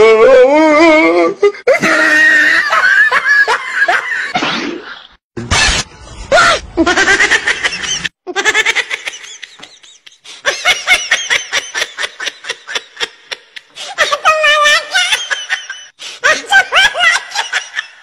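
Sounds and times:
person laughing in bursts: 0:06.3 - 0:18.0.

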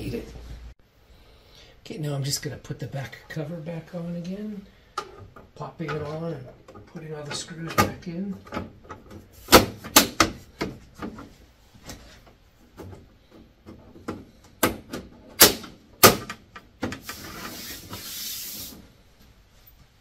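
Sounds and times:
hissing rustle: 0:17.0 - 0:19.0.

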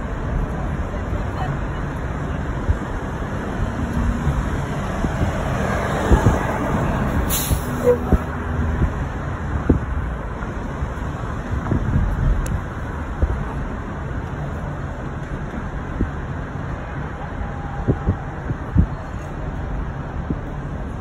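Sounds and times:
bus passing: 0:00.0 - 0:21.0
road rumble: 0:00.0 - 0:21.0
air brakes hissing: 0:07.3 - 0:08.1.

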